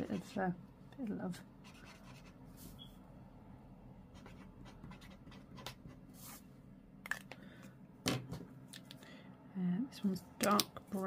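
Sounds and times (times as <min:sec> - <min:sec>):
marker scratching on card: 0:01.6 - 0:02.4, 0:04.2 - 0:06.4.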